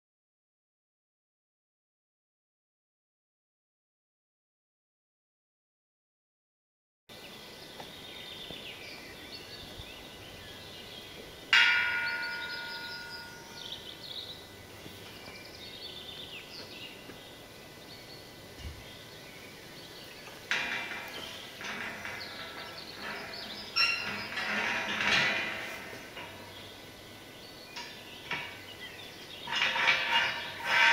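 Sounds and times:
birds singing: 7.1 - 30.9
rattling knocks of metal panels: 20.2 - 27.0, 27.8 - 30.9
metal panel clanging: 20.2 - 30.9.

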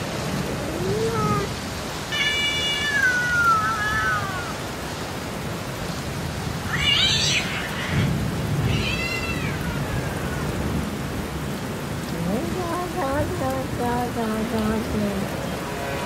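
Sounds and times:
steady rain: 0.0 - 16.0
cat meowing: 0.6 - 4.8, 6.7 - 10.6
thunder rumble: 6.2 - 16.0.

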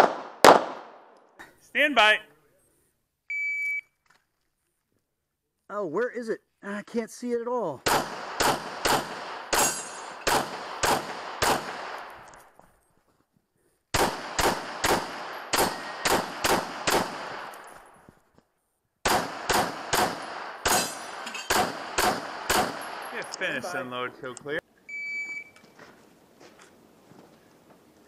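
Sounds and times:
pistol shots with echo: 0.0 - 1.1, 7.8 - 12.3, 13.9 - 17.6, 19.0 - 23.2.

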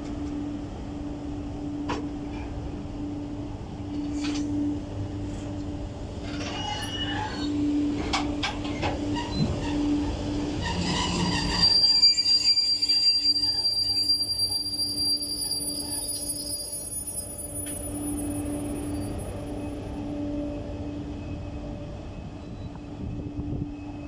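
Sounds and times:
electric locomotive hum: 0.0 - 24.0
train clanks: 1.8 - 2.6, 3.8 - 4.6, 5.3 - 12.0, 17.3 - 19.8
high-pitched wheel squeal: 6.4 - 7.6, 9.1 - 19.5.

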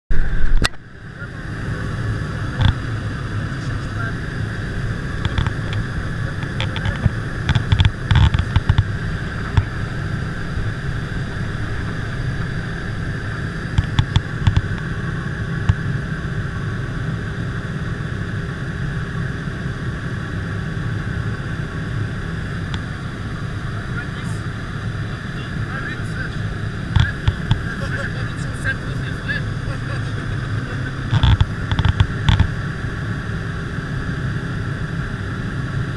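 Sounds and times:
airplane engine drone: 0.1 - 35.9
sharp knocks and clicks: 5.2 - 5.8, 6.4 - 8.9, 13.7 - 14.9, 27.0 - 27.6, 31.1 - 32.5.

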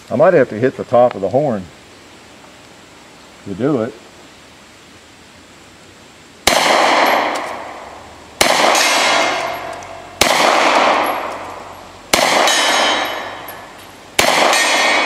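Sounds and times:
gunshots with ringing: 6.4 - 15.0
steel target plates clanging: 8.8 - 15.0.

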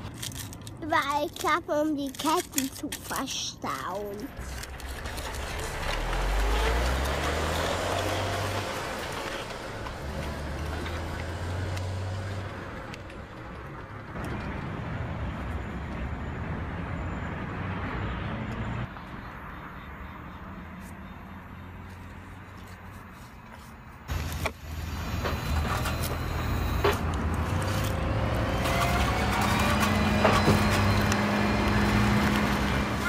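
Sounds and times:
vehicle engine running: 4.3 - 14.2.

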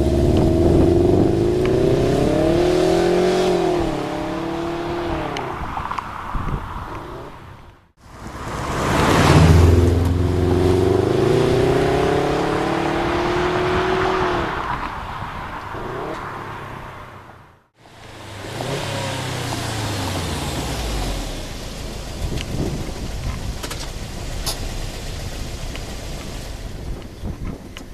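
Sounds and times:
car engine accelerating: 0.0 - 27.3.

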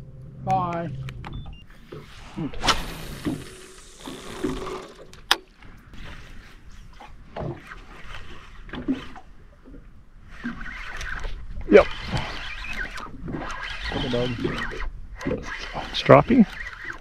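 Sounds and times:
water sloshing against boat hull: 4.4 - 17.0.

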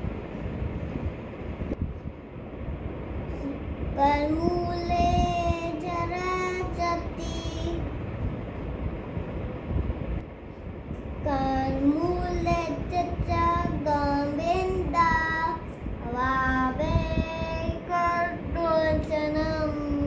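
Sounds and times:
low background hiss: 0.0 - 20.0
boy singing prayer: 11.3 - 20.0.

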